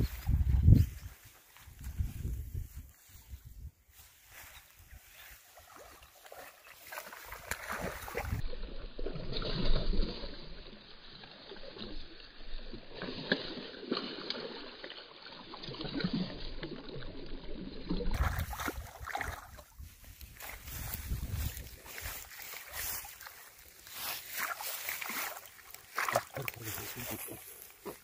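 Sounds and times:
fish splashing in water: 5.6s - 19.7s, 21.9s - 26.7s.

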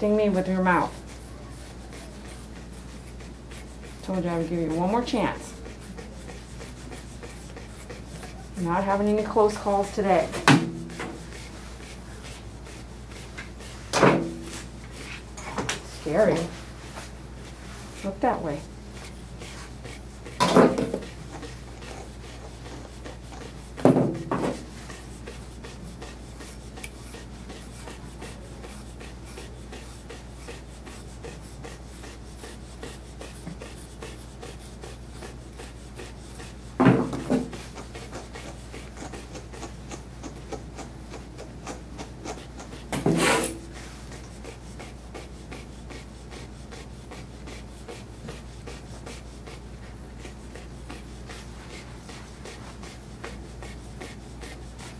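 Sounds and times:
comb rubbing through dog's coat: 0.0s - 10.4s, 11.2s - 20.4s, 43.7s - 54.9s.

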